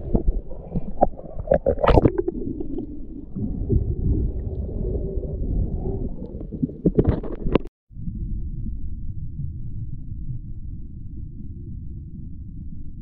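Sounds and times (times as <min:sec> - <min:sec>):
water splashes: 0:00.0 - 0:07.6
muffled water sloshing: 0:00.0 - 0:08.1.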